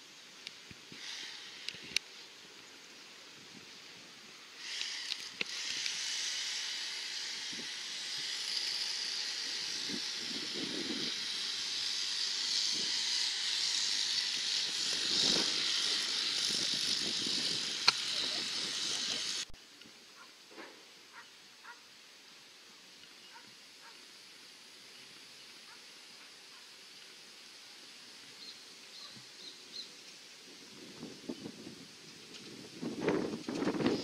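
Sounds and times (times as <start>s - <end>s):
high-pitched outdoor hiss: 0.0s - 34.0s.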